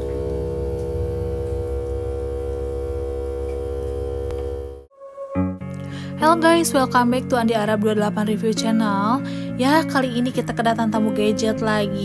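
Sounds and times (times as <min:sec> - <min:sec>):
droning tone: 0:00.0 - 0:06.5
low hum: 0:00.0 - 0:06.5.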